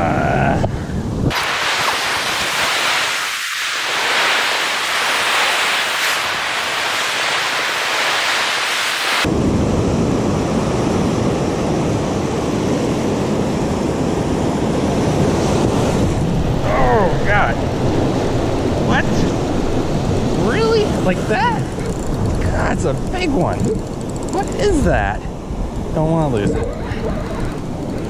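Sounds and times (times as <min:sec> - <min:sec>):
wind on microphone: 0:00.0 - 0:28.0
surf washing up beach: 0:01.3 - 0:23.5.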